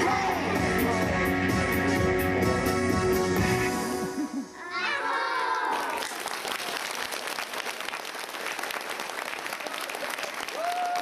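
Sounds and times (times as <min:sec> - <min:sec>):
music: 0:00.0 - 0:04.5
audience applauding: 0:05.5 - 0:11.0.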